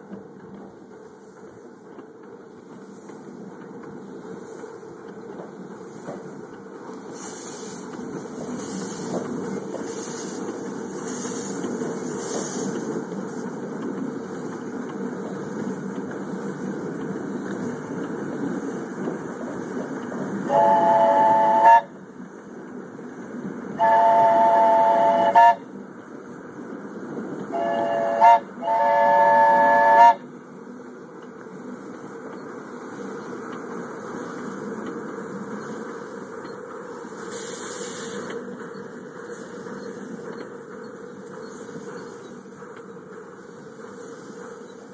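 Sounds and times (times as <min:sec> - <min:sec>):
miniature train rumbling on track: 0:00.0 - 0:44.9
steam whistle blasts: 0:20.5 - 0:21.9, 0:23.8 - 0:25.7, 0:27.5 - 0:30.2.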